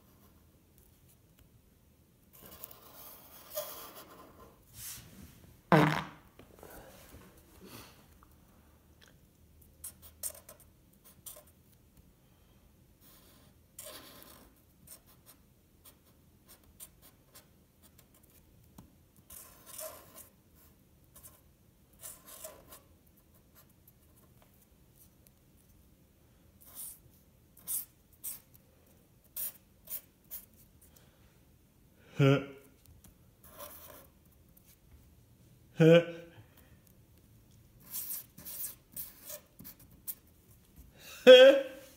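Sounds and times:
marker scratching on paper: 2.3s - 5.0s, 9.8s - 11.6s, 13.0s - 18.5s, 19.2s - 25.1s, 26.6s - 28.6s, 29.2s - 30.8s, 33.4s - 34.8s, 37.8s - 40.5s.

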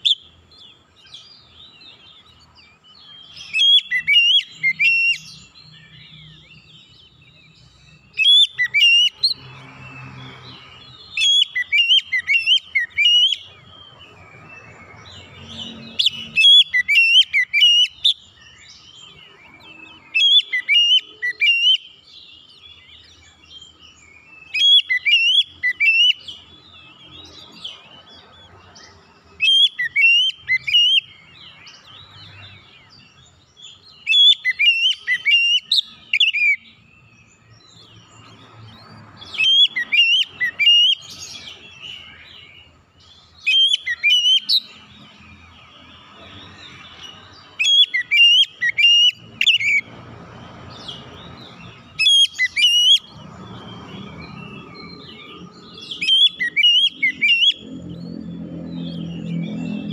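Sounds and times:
bird whistled calls: 3.0s - 6.4s, 8.1s - 9.5s, 10.9s - 22.0s, 22.8s - 26.4s, 28.9s - 33.0s, 33.7s - 36.8s, 39.3s - 42.6s, 43.4s - 44.8s, 45.7s - 49.9s, 50.8s - 53.2s, 53.8s - 57.7s.

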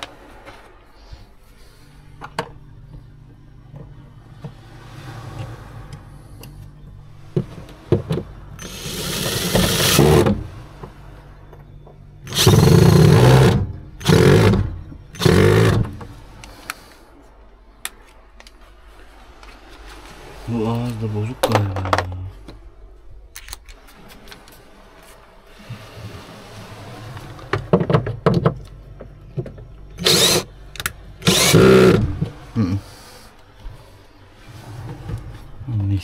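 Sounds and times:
power drill driving screws: 8.6s - 10.3s, 12.3s - 15.9s, 30.0s - 30.5s, 31.2s - 32.2s.

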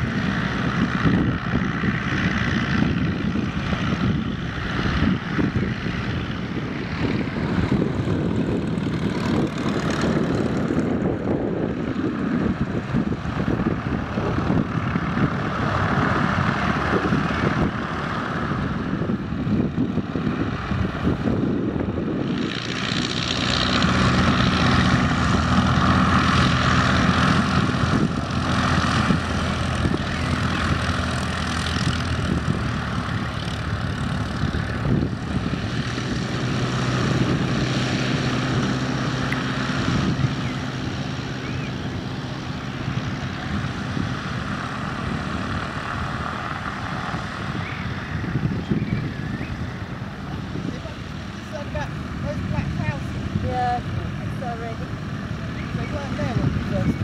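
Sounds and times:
propeller aircraft engines droning: 0.0s - 57.0s.

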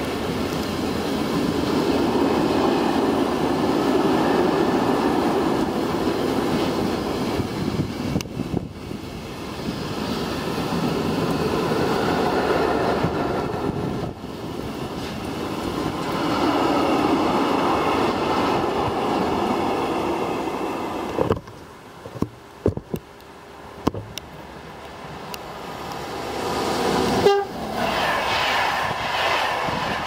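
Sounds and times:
freight train wheels rumbling: 0.0s - 23.0s, 23.8s - 30.0s.

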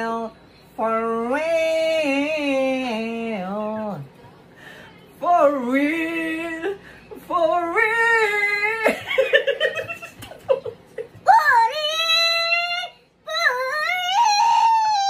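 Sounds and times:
person giggling: 8.8s - 11.3s.

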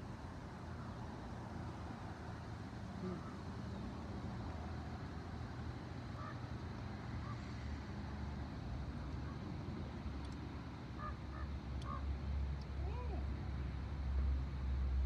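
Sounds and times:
ravens calling: 6.2s - 6.5s, 11.0s - 12.2s.

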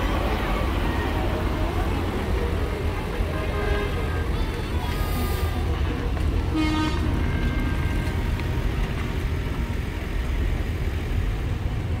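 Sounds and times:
diesel truck engine rumbling: 0.0s - 12.0s.

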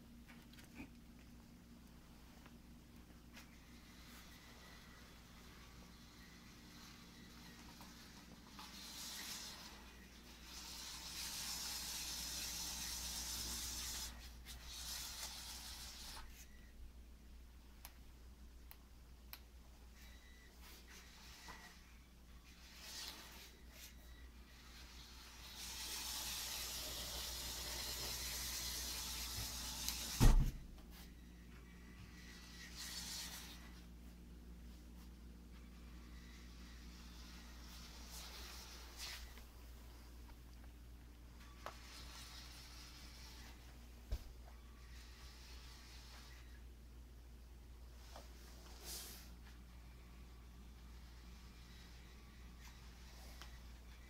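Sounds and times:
toy car motors whirring: 6.8s - 16.3s, 24.5s - 30.2s, 32.2s - 33.7s, 36.5s - 39.3s, 41.5s - 43.6s.

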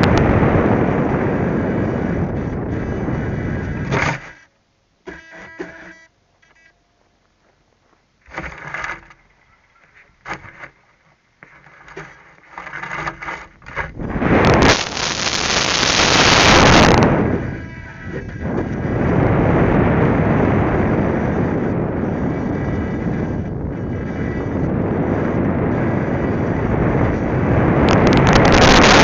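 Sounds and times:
wind rushing over microphone: 0.0s - 4.3s, 13.7s - 29.0s.

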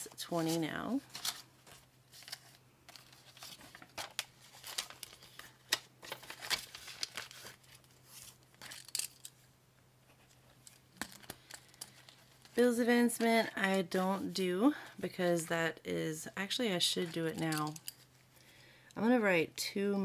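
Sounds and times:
paper and plastic rustling: 0.2s - 9.4s.

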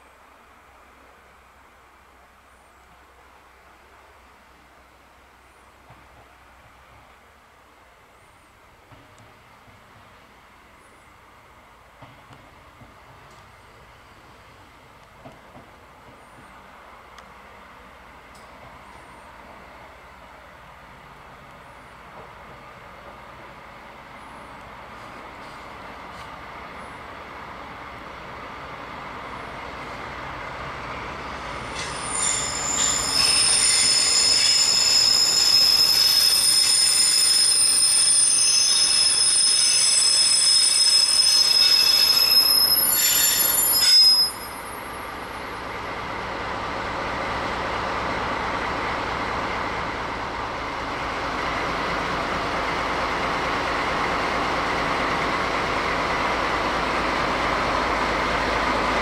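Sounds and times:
locomotive brakes squealing: 31.3s - 45.5s.

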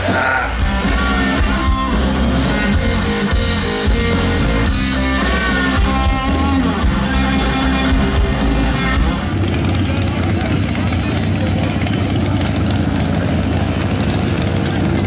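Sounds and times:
drum kit beat: 0.0s - 12.0s
electric guitar: 0.0s - 13.1s
electric bass line: 0.0s - 15.0s.

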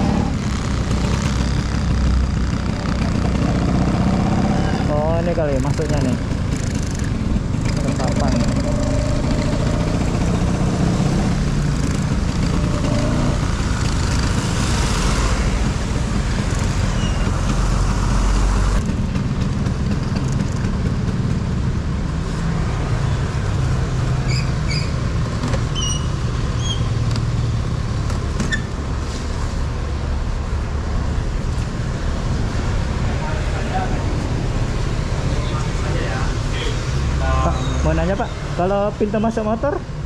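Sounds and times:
scooter engine: 0.0s - 29.0s
road traffic: 0.0s - 40.0s.

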